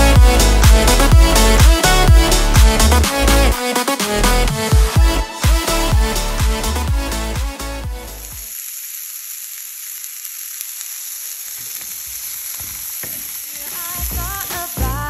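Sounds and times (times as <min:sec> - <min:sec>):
dance music: 0:00.0 - 0:08.5, 0:13.5 - 0:15.0
food sizzling in a frying pan: 0:08.1 - 0:15.0.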